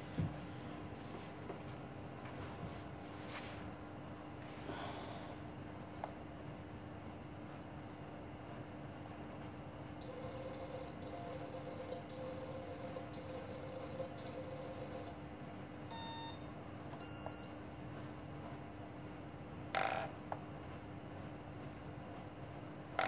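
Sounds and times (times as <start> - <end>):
short beeps: 15.9 - 17.6.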